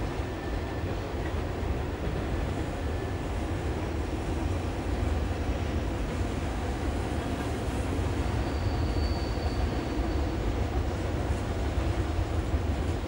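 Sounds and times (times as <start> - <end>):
train wheels rumbling on rails: 0.0 - 13.0
high wheel squeal: 8.2 - 10.5.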